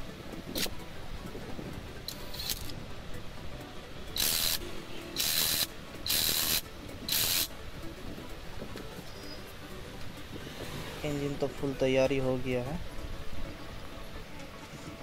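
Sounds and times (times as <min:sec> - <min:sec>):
impact wrench bursts: 0:04.2 - 0:04.6, 0:05.2 - 0:07.5.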